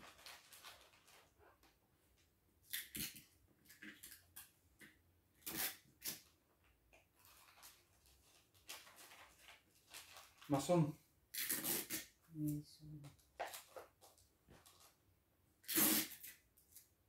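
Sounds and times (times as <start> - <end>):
wrapping paper rustling: 0.0 - 1.7, 7.2 - 10.8.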